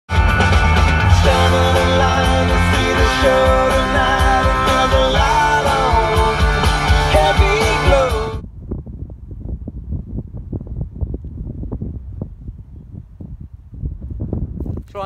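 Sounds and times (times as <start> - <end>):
rock music with singing: 0.1 - 8.4.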